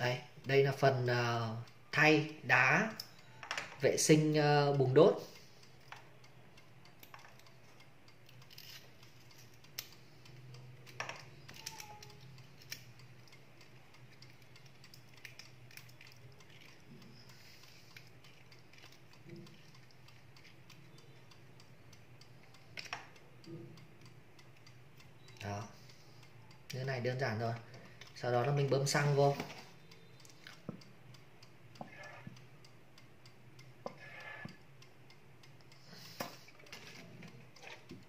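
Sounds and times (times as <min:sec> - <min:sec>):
small metal clicks and taps: 0:05.6 - 0:21.2, 0:21.9 - 0:25.5, 0:26.7 - 0:38.0.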